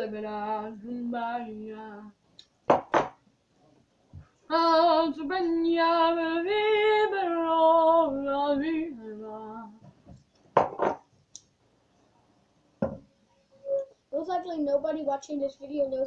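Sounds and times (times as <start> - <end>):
woman singing wordless tune: 0.0 - 2.2, 4.5 - 9.9.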